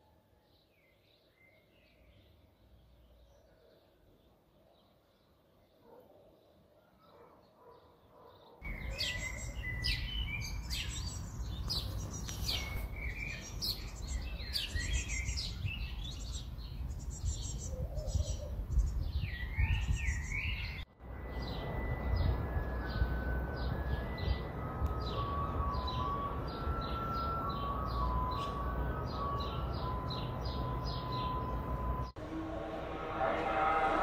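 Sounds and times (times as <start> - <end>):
small birds chirping and trilling: 0.3 - 32.2
steady high tones: 21.1 - 34.0
low rumble: 32.0 - 34.0.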